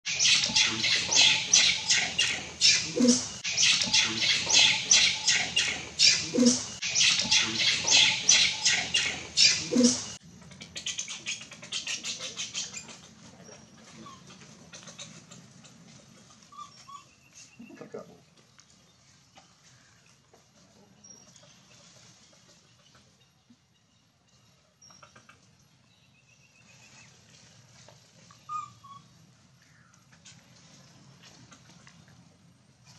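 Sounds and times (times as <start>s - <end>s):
high-pitched animal chattering: 0.1s - 15.4s.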